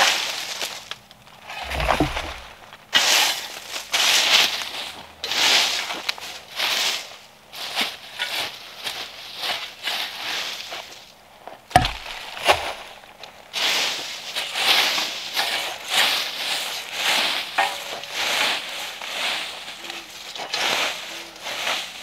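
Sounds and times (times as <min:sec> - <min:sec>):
dry leaves and twigs crunching: 0:00.0 - 0:22.0
sharp knocks: 0:01.6 - 0:02.6, 0:11.8 - 0:12.3.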